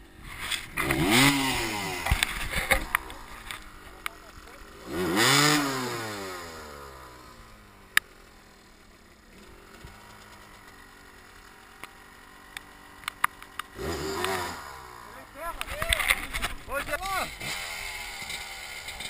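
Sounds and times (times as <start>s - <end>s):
motorcycle engine revving: 0.0s - 19.0s
sharp clicks: 11.8s - 14.4s, 15.5s - 17.6s.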